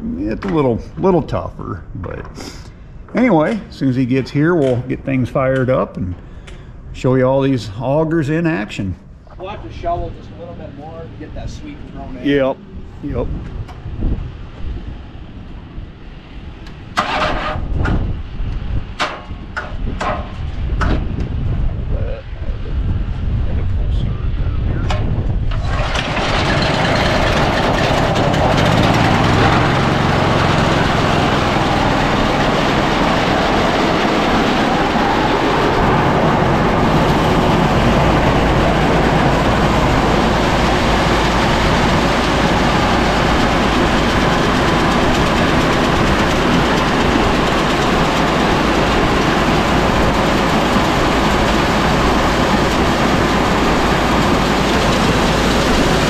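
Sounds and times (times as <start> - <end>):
small gasoline engine running: 25.5 - 56.0
deep steady hum: 26.3 - 56.0.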